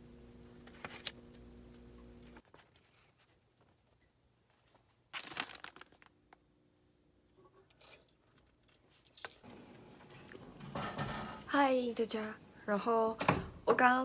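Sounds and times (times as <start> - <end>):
crinkling and rustling: 0.6 - 1.2, 2.2 - 6.5.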